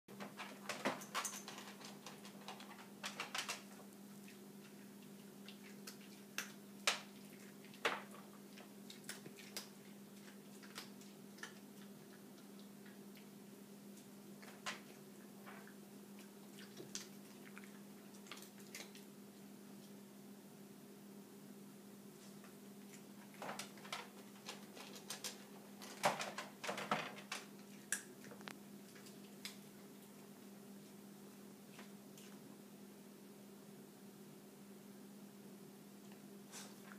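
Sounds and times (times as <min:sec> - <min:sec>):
faint steady hum: 0:00.1 - 0:36.9
dog crunching dry food: 0:00.2 - 0:13.0, 0:23.0 - 0:29.6
dog chewing crunchy food: 0:00.6 - 0:19.5.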